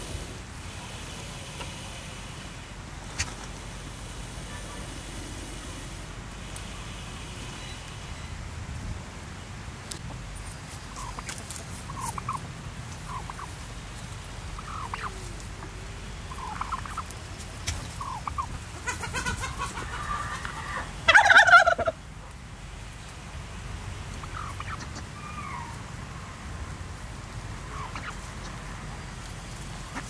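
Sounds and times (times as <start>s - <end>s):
turkeys calling softly: 0.8s - 8.3s, 9.9s - 30.0s
turkey gobbling: 1.5s - 6.0s, 10.9s - 22.4s, 24.1s - 25.9s, 27.6s - 29.0s, 29.8s - 30.0s.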